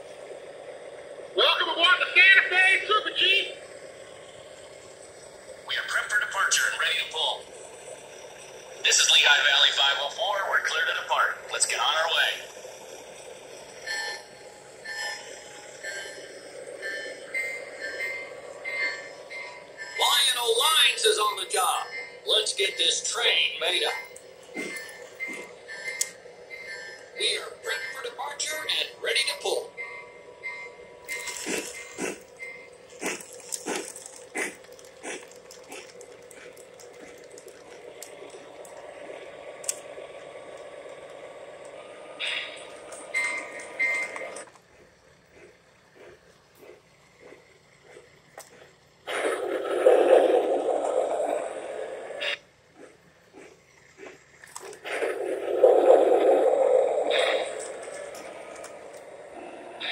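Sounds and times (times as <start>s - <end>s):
model train wheels rumbling on rails: 0.0s - 59.9s
short high ringing tones: 13.8s - 32.8s, 42.2s - 44.5s
sharp pulses: 49.1s - 59.9s.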